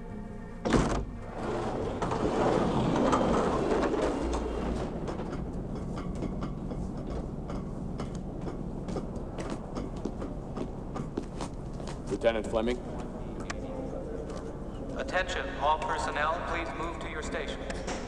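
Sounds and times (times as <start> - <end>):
steady low hum: 0.0 - 18.0
loud mechanical rumble: 0.9 - 13.6
footsteps on metal stairs: 3.6 - 13.6.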